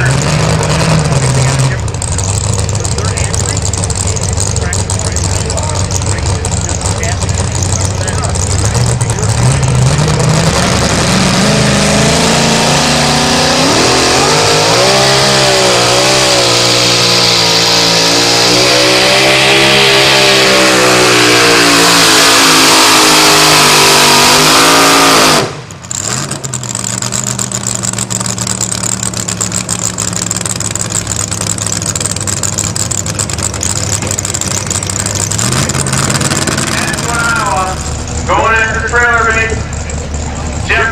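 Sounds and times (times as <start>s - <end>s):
engine low idle: 0.0s - 10.9s, 25.6s - 40.9s
truck engine revving: 0.0s - 40.9s.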